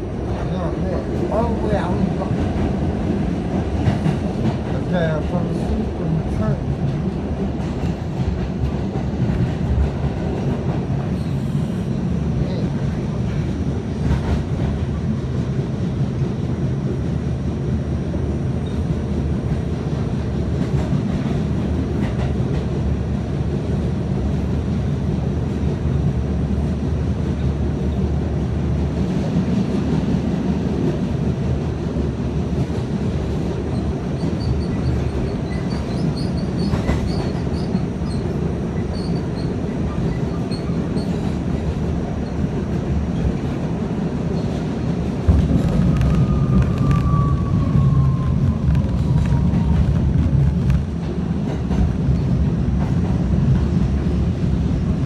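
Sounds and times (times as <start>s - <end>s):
subway wheels rumbling on rail: 0.0s - 55.0s
rail joint clicks: 20.5s - 22.8s, 32.5s - 54.1s.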